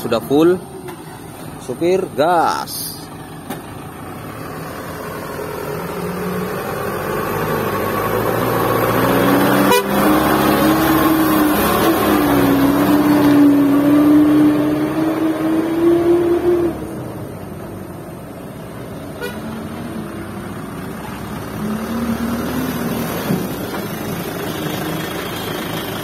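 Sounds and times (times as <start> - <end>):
truck diesel engine under load: 0.0 - 26.0.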